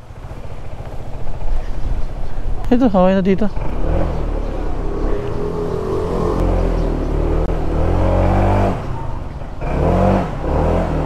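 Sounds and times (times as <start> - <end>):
scooter engine revving: 3.4 - 11.0.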